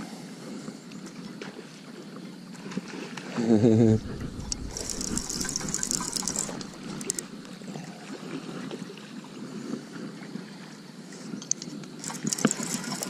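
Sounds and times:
steady low rumble: 3.7 - 7.7
fishing reel clicking: 3.9 - 7.4, 11.5 - 13.0.

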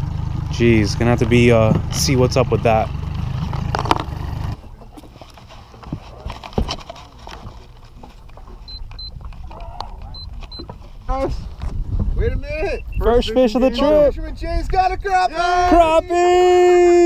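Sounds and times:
outboard motor idling: 0.0 - 14.1
short high beeps: 8.6 - 9.2, 10.1 - 10.7.

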